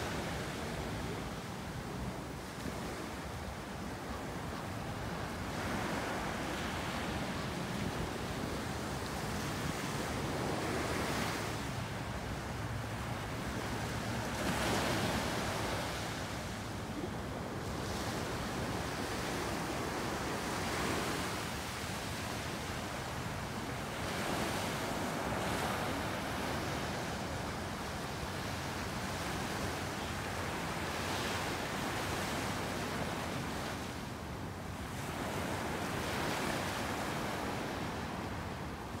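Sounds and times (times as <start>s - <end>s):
small waves breaking on beach: 0.0s - 39.0s.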